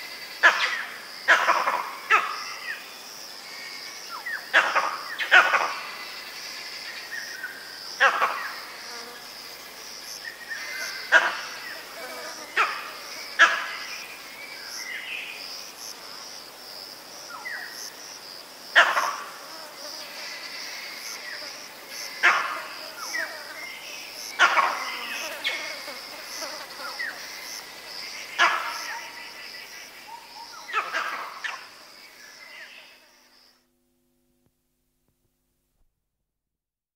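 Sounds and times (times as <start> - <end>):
monkey alarm barks: 0.4 - 2.6, 4.5 - 5.9, 8.0 - 8.6, 10.8 - 11.8, 12.6 - 13.8, 18.8 - 19.3, 22.2 - 23.3, 24.4 - 25.6, 28.4 - 29.3, 30.1 - 31.7.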